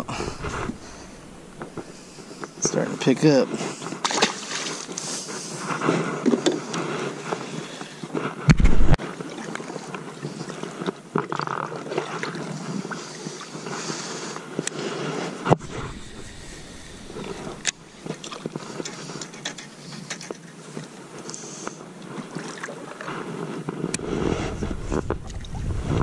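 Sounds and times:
kayak paddle strokes in water: 0.0 - 26.0.

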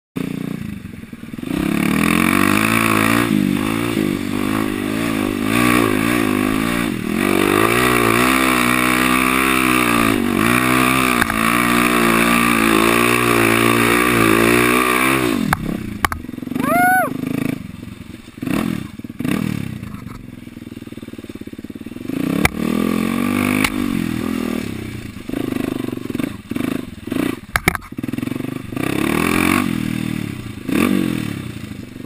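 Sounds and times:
dirt bike engine revving: 0.2 - 32.0.

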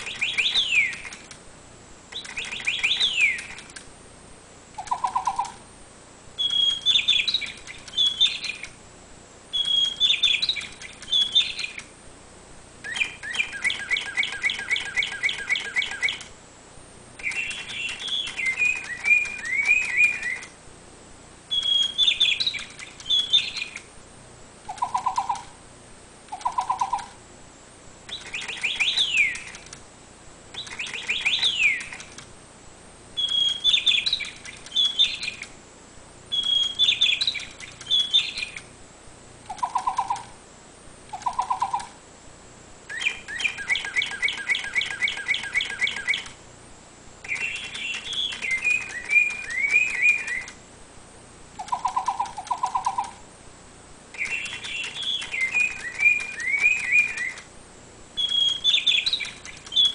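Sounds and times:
toy bird chirping through speaker: 0.0 - 1.3, 2.1 - 3.8, 4.8 - 5.6, 6.4 - 8.8, 9.5 - 11.9, 12.8 - 16.3, 17.2 - 20.6, 21.5 - 23.9, 24.7 - 25.6, 26.3 - 27.2, 28.1 - 29.6, 30.5 - 32.2, 33.2 - 35.5, 36.3 - 38.7, 39.5 - 40.4, 41.1 - 42.0, 42.9 - 46.4, 47.2 - 50.6, 51.6 - 53.2, 54.1 - 57.5, 58.2 - 59.9.

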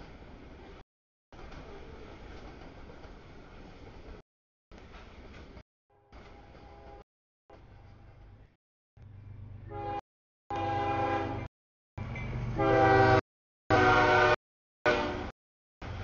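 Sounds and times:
locomotive air horn blasts: 5.9 - 7.0, 9.6 - 11.5, 12.6 - 15.3.

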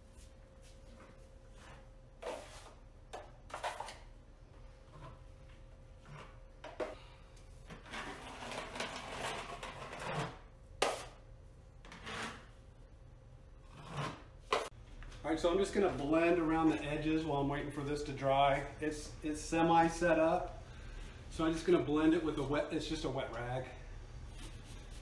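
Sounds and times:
taping knife scraping compound: 11.9 - 12.5, 13.6 - 14.7.

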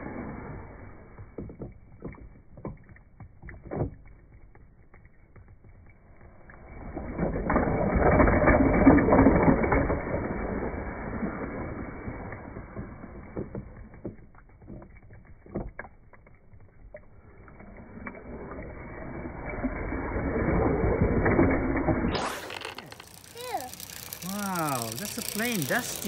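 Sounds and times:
toy cars rattling: 22.2 - 26.0
toy mechanism whirring: 22.2 - 26.0.

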